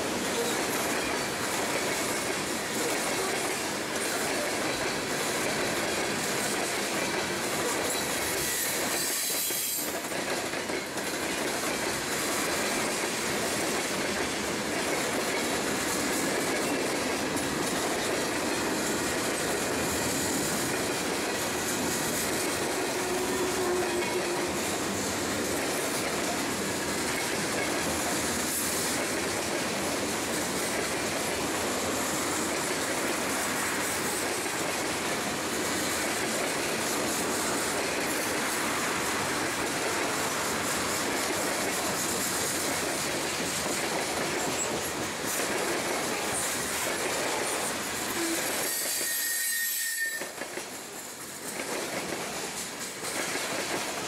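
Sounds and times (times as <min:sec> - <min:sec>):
freight train rumbling past: 0:00.0 - 0:54.0
high-pitched wheel squeal: 0:48.6 - 0:50.3.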